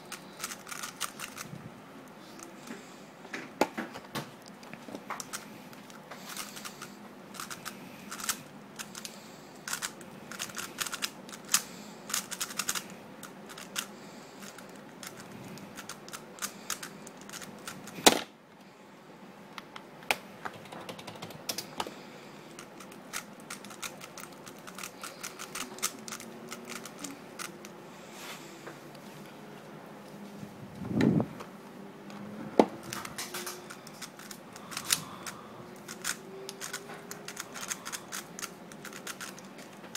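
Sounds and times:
puzzle cube plastic clicks: 0:00.1 - 0:01.5, 0:05.2 - 0:12.9, 0:13.5 - 0:18.0, 0:22.6 - 0:27.7, 0:32.8 - 0:39.9.

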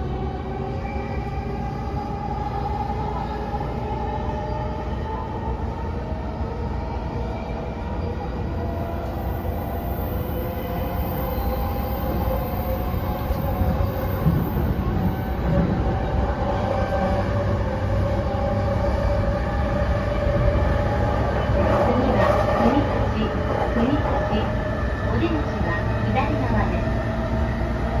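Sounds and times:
train wheels rumbling on track: 0:07.9 - 0:28.0.

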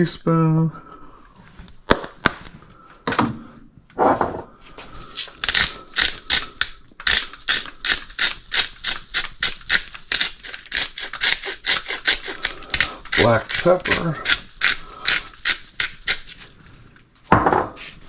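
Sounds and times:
pepper grinder ratcheting clicks: 0:05.2 - 0:16.5
knock: 0:17.3 - 0:17.8.

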